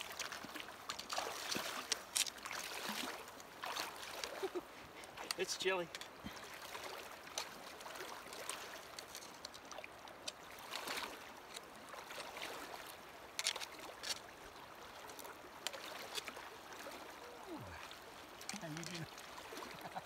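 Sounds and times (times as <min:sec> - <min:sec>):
sharp splashes: 0:00.0 - 0:04.6
river water rushing: 0:00.0 - 0:20.0.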